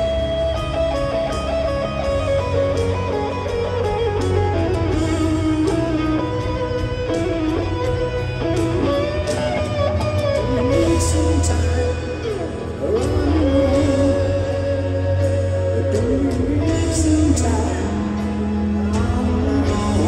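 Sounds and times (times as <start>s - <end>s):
electric guitar solo: 0.0s - 20.0s
live rock band playing: 0.0s - 20.0s.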